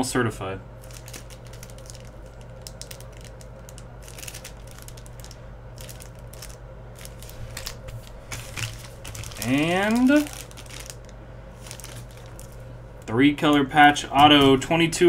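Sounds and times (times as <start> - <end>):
steady low hum: 0.0 - 15.0
plastic bag crinkling: 0.8 - 12.8.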